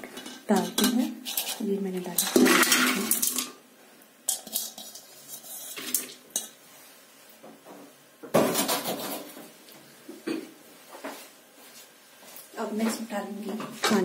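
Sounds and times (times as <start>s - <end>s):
beans clinking in metal pot: 0.0s - 3.6s, 4.2s - 6.6s.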